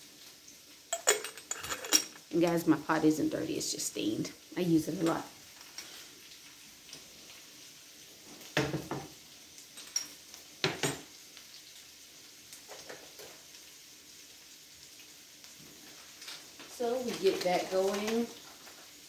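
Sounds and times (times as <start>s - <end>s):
potatoes sizzling in a skillet: 0.0s - 19.0s
cookware clanking on stovetop: 0.9s - 2.3s, 8.6s - 9.1s, 9.8s - 11.1s.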